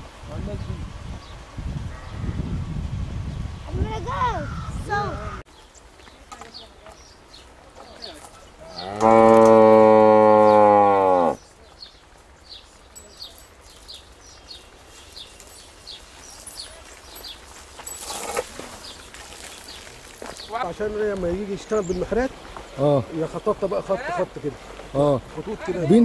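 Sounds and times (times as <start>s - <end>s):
cow mooing: 8.8s - 11.4s.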